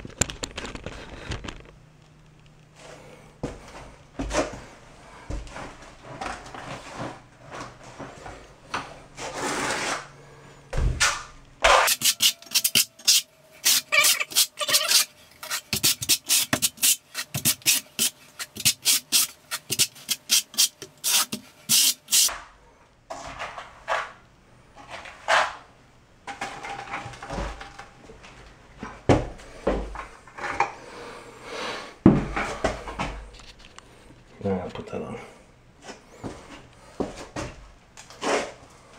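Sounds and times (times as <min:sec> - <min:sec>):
trowel scraping mortar on stone: 0:11.7 - 0:22.3.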